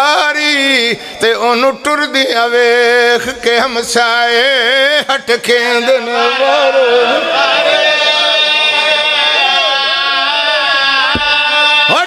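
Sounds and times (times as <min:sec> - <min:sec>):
man chanting a lament over pa: 0:00.0 - 0:07.2, 0:09.7 - 0:12.0.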